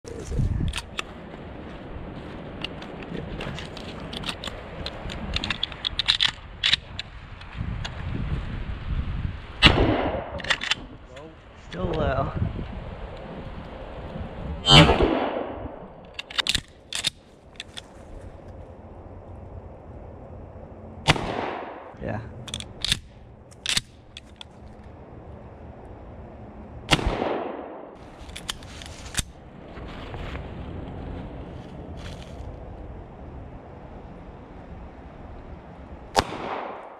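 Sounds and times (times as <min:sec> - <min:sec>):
shotgun being handled: 0:00.7 - 0:01.2, 0:02.6 - 0:07.1, 0:10.4 - 0:10.9, 0:16.0 - 0:18.6, 0:22.4 - 0:24.9, 0:28.0 - 0:29.4, 0:31.6 - 0:32.5
loud gunshot with echo: 0:14.7 - 0:15.6.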